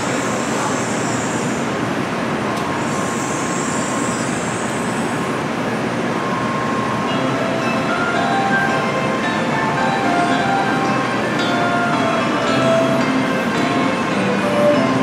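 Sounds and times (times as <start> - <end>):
train noise: 0.0 - 15.0
high hiss: 2.8 - 5.3.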